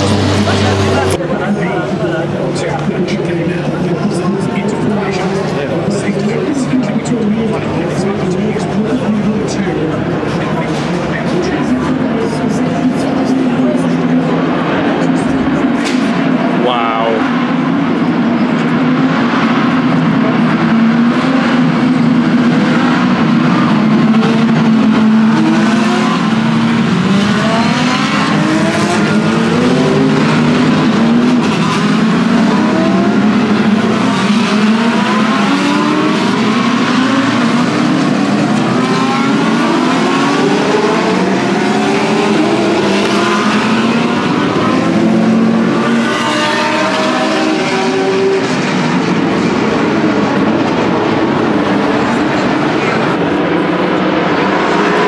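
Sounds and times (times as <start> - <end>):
race cars accelerating past: 0.0 - 1.4, 17.2 - 55.0.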